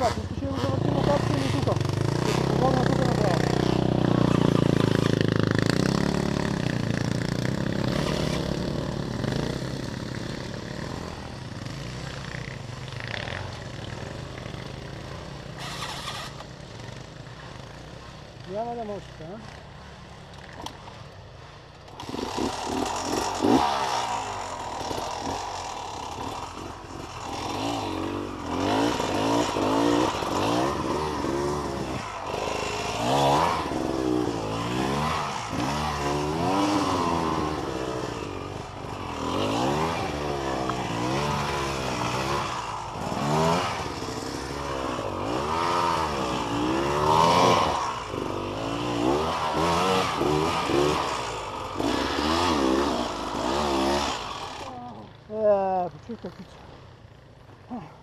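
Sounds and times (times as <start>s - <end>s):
dirt bike engine revving: 0.0s - 57.9s.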